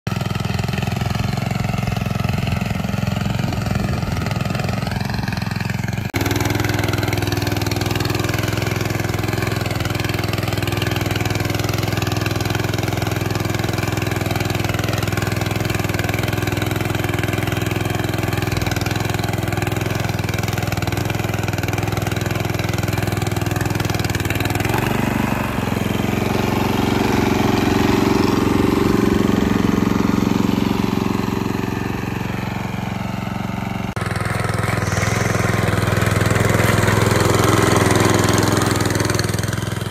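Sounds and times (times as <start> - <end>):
small petrol engine running: 0.1 - 39.9.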